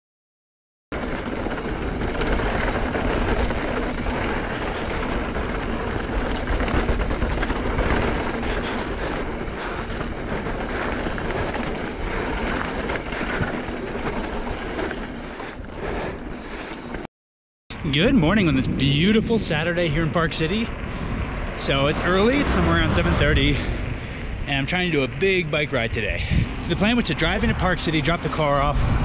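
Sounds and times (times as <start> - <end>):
bike clicking and rattling: 0.9 - 17.1
tyre noise on dirt: 0.9 - 17.1
rush of air: 1.0 - 17.1.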